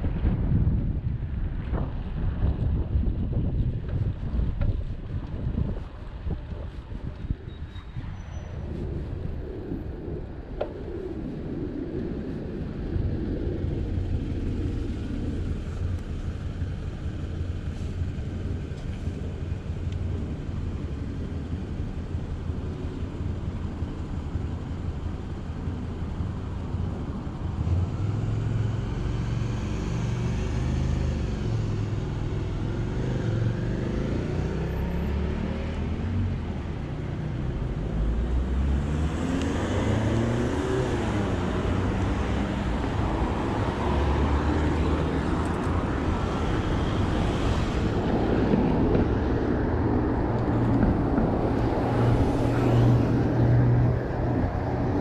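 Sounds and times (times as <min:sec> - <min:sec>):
wind rumble on microphone: 0:00.0 - 0:55.0
cars passing: 0:08.0 - 0:55.0.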